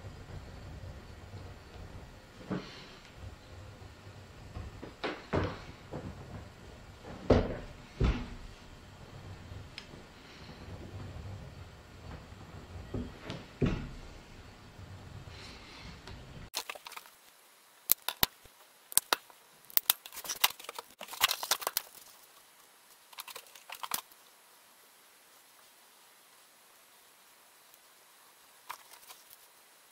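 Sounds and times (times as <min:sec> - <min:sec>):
stiff paper crackling: 0:19.8 - 0:24.2, 0:28.6 - 0:29.6.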